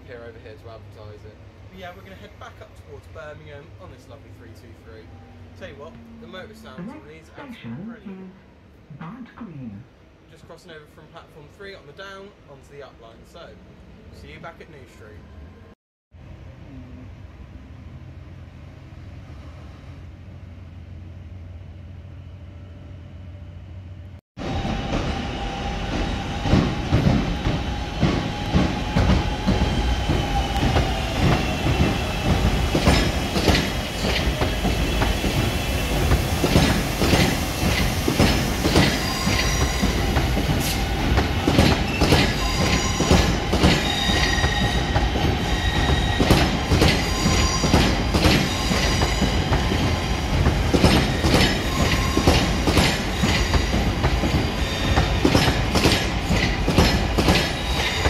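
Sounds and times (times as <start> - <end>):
low hum inside electric train: 15.2 - 58.0
high squealing of train wheels: 24.4 - 58.0.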